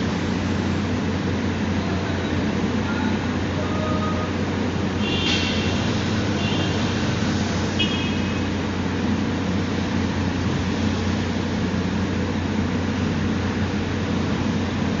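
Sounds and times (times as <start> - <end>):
low rumble of vehicles and machinery: 0.0 - 15.0
brief high tone: 2.9 - 4.4.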